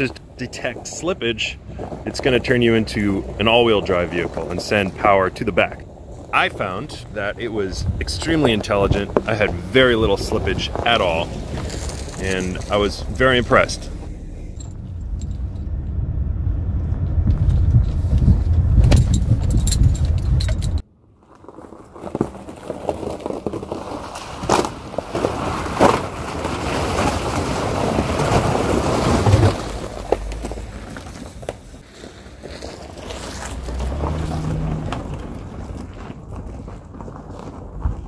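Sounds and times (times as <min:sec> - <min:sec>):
low rumble inside vehicle cab: 0:00.0 - 0:20.8
tyres splashing through muddy puddle: 0:21.9 - 0:37.1.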